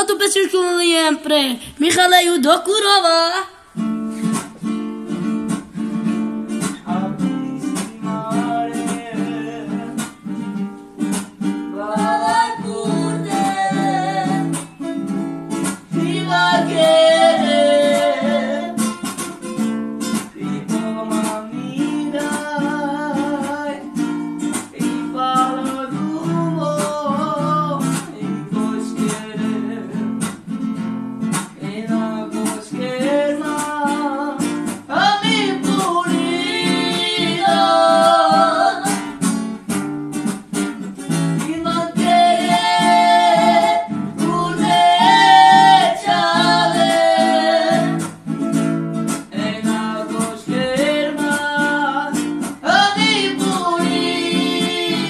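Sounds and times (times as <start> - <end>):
acoustic guitar strumming: 0.0 - 55.0
man singing: 6.7 - 10.2, 11.7 - 14.6, 15.9 - 19.0, 20.3 - 24.0, 24.7 - 30.2, 31.6 - 39.1, 41.4 - 48.0, 49.3 - 55.0.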